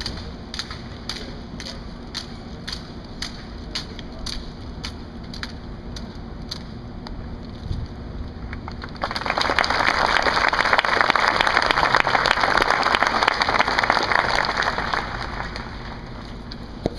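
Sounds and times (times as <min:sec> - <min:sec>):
audience applauding: 0:08.5 - 0:16.2.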